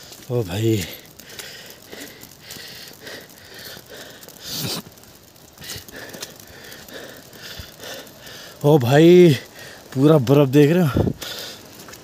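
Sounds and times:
footsteps crunching on snow: 0.0s - 3.4s
person breathing: 0.8s - 5.0s, 5.6s - 8.6s, 9.4s - 10.0s, 10.9s - 11.8s.

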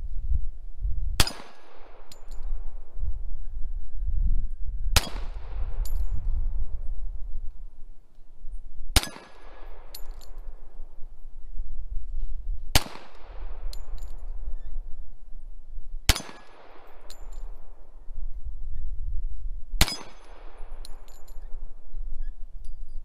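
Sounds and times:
pistol shots: 1.2s - 2.3s, 9.0s - 10.4s, 12.7s - 13.9s, 16.1s - 17.3s, 19.8s - 21.2s
metallic clinks of casings: 1.2s - 2.7s, 5.8s - 6.4s, 9.0s - 11.1s, 13.6s - 14.7s, 16.1s - 17.8s, 19.8s - 23.0s.

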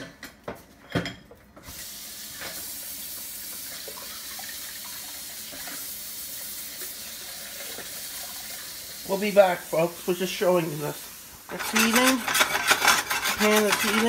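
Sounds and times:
tap water running into sink: 1.6s - 9.8s.

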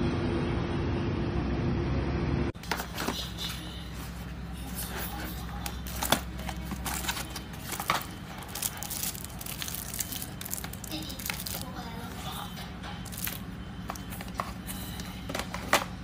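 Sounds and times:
cardboard crinkling: 2.6s - 12.4s, 13.0s - 16.0s.

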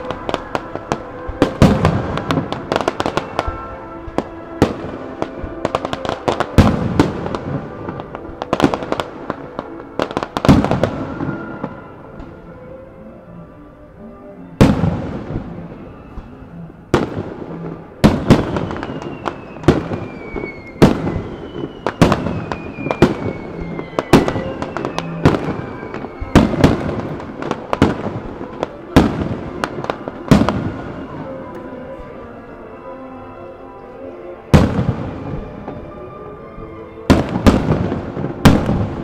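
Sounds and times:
fireworks bursting: 0.0s - 12.4s, 14.5s - 32.3s, 34.5s - 39.0s
fireworks whistling: 0.0s - 12.4s, 14.6s - 31.5s, 37.1s - 39.0s
faint music: 0.0s - 39.0s.

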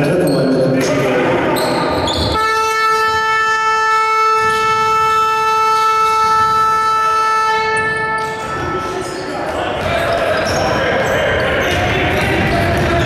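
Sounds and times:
scoreboard horn blast: 2.3s - 9.0s.

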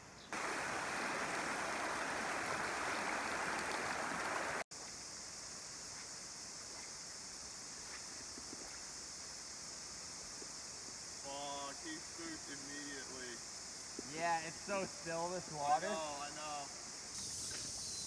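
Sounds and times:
high insect drone: 0.0s - 18.0s
river water rushing: 0.3s - 4.6s.

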